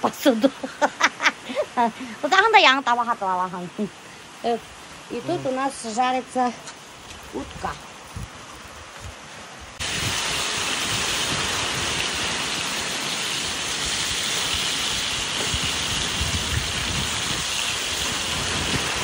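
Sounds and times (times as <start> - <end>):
fish sizzling in hot oil: 9.8 - 19.0.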